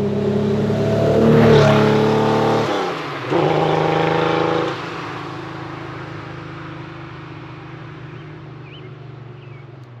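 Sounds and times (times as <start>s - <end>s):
car engine driving away: 0.0s - 10.0s.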